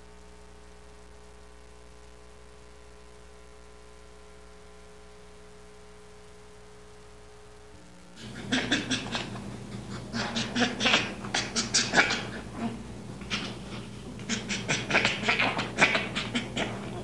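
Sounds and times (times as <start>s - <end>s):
low steady hum: 0.0s - 17.0s
baby chimpanzee laughing: 8.2s - 17.0s.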